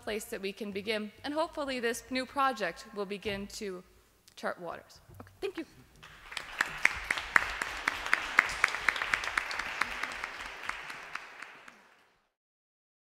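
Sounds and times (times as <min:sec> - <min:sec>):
audience applauding: 0:06.0 - 0:12.4.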